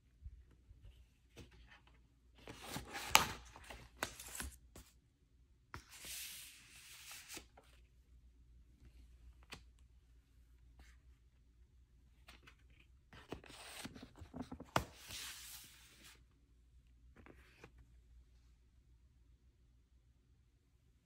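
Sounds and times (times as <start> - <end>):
paper pages rustling: 12.3 - 16.1.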